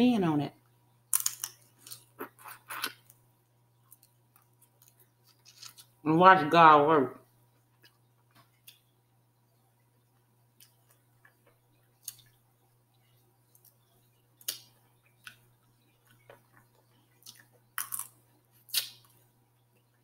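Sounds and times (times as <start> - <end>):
quiet chewing: 7.5 - 8.9
crab shells cracking: 17.8 - 19.1.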